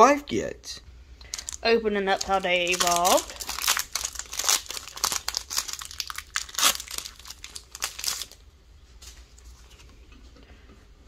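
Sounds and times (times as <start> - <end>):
foil wrapper crinkling and tearing: 1.3 - 8.4
faint handling sounds: 8.8 - 11.0.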